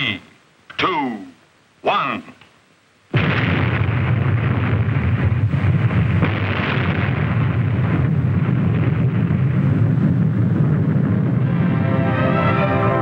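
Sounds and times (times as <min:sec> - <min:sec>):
explosion rumble: 0:03.1 - 0:13.0.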